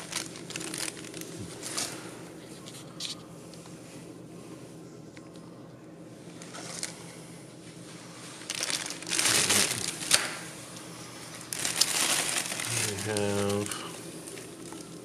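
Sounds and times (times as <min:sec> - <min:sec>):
plastic bag crinkling: 0:00.0 - 0:02.0, 0:08.3 - 0:10.5, 0:11.3 - 0:15.0.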